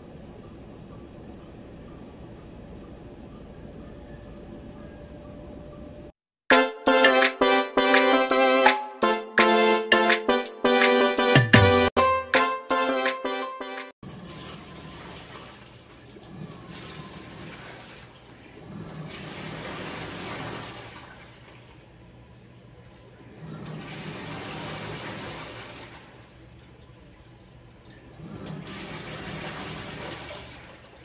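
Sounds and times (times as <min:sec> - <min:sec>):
washing machine low hum: 0:00.0 - 0:06.2, 0:14.0 - 0:31.0
water and clothes sloshing: 0:14.0 - 0:31.0.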